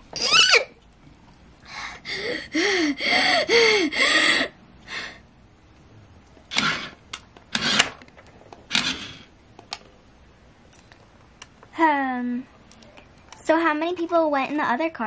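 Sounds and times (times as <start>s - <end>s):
toy car scraping: 6.5s - 8.0s, 8.7s - 9.3s.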